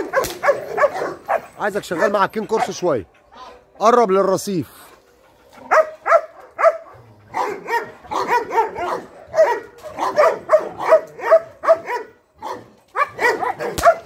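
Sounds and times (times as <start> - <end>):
dog barking rapidly: 0.0 - 2.8, 5.7 - 14.0.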